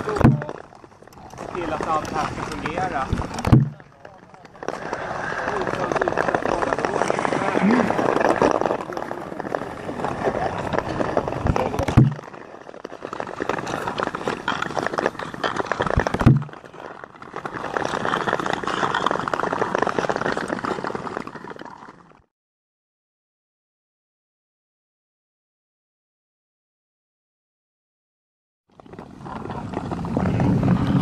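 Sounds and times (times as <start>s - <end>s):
deep thumps: 0.0s - 0.6s, 3.1s - 4.1s, 11.4s - 12.3s, 16.0s - 16.6s
ice skates scraping on ice: 0.0s - 22.2s, 28.8s - 31.0s.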